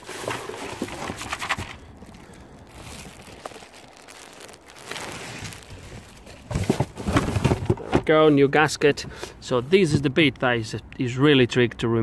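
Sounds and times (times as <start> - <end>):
packaging crinkling and rustling: 0.0 - 8.1.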